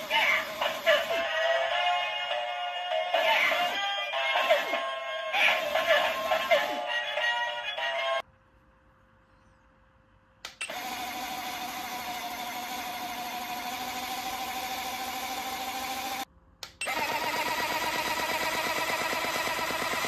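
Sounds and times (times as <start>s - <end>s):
small motor whirring: 10.6s - 20.0s.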